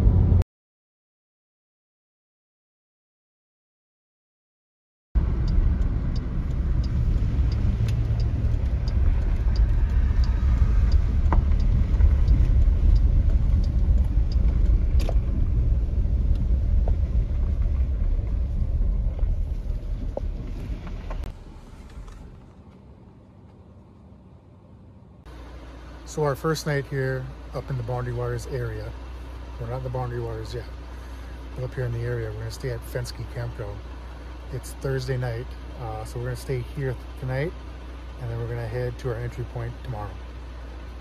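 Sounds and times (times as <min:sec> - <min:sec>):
car road noise rumble: 0:00.0 - 0:00.4, 0:05.2 - 0:41.0
gravel ticks: 0:05.4 - 0:23.7.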